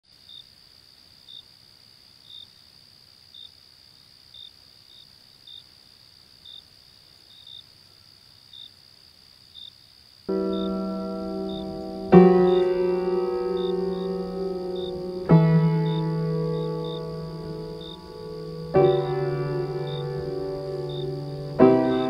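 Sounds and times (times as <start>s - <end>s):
crickets trilling: 0.0s - 22.0s
short cricket chirps: 0.1s - 22.0s
sustained musical chord: 10.3s - 22.0s.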